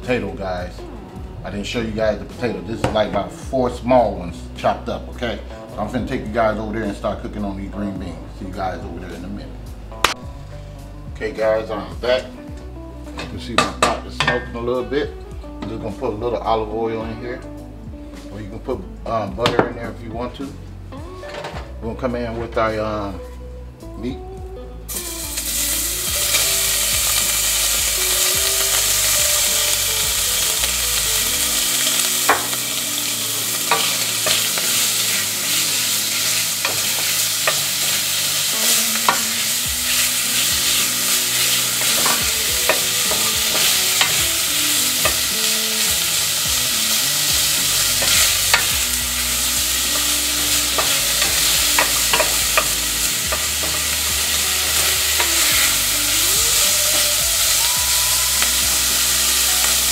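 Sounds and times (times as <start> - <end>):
bacon sizzling in oil: 24.9 - 59.9.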